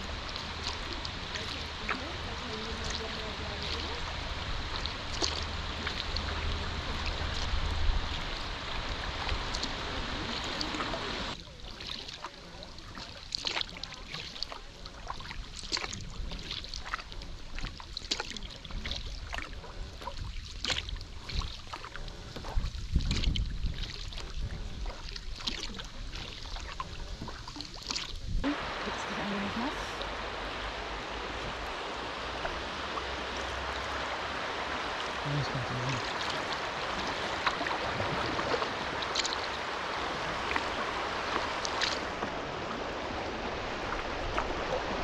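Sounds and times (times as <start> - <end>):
water rushing hiss: 0.0 - 12.1, 28.4 - 45.0
paddle splashes and drips: 0.0 - 45.0.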